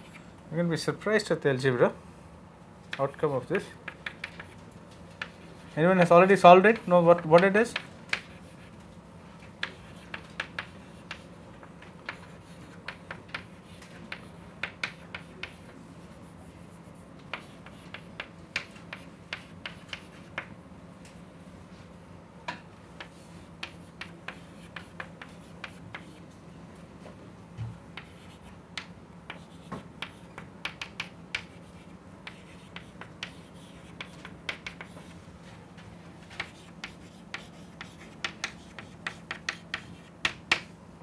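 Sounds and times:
chalk tapping and scratching: 3.8s - 8.8s, 9.4s - 20.5s, 23.0s - 26.3s, 27.9s - 35.2s, 36.2s - 40.7s.

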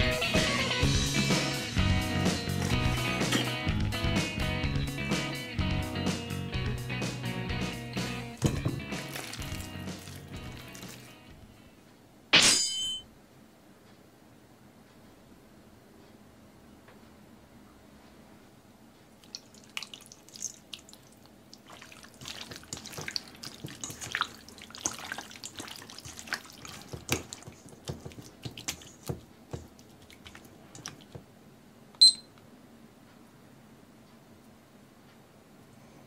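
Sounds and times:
hands squelching raw chicken: 8.8s - 11.2s, 19.2s - 31.2s
kitchen timer beep: 32.0s - 32.4s.

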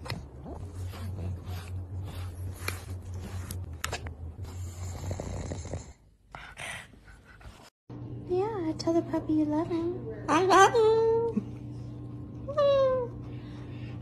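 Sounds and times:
dog snoring-like breathing: 4.4s - 6.1s.

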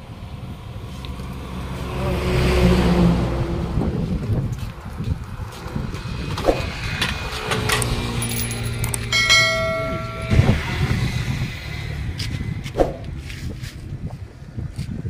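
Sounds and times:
bell-like ding: 8.4s - 11.0s.

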